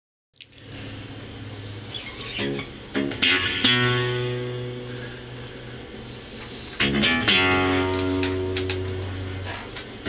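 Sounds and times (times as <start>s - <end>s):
acoustic guitar strumming: 2.2s - 5.1s, 6.8s - 9.6s.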